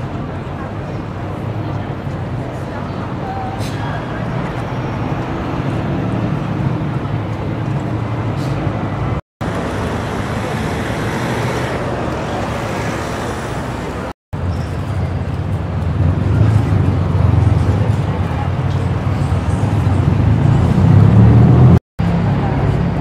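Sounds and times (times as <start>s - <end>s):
street traffic: 0.0s - 23.0s.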